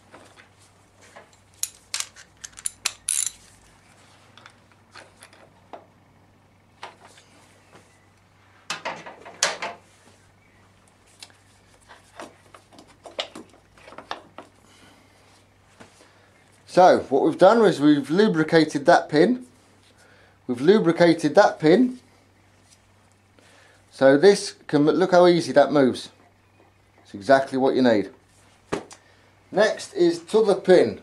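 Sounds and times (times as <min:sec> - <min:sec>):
metallic clicks of tools: 0:01.3 - 0:03.4.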